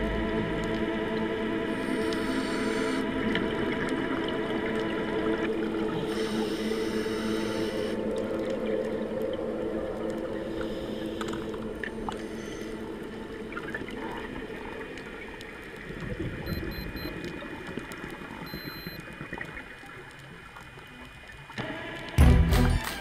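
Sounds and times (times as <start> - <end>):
music: 0.0 - 13.9, 21.6 - 23.0
underwater motor hum: 0.0 - 22.2.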